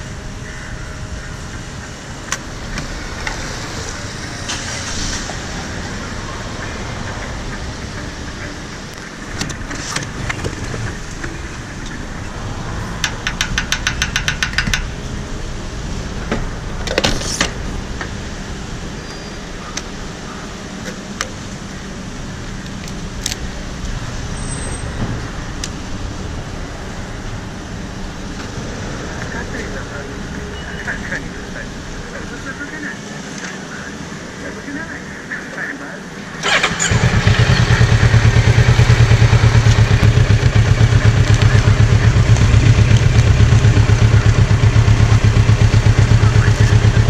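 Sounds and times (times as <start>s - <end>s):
steady low rumble: 0.0s - 13.0s
sharp knocks: 13.0s - 14.9s.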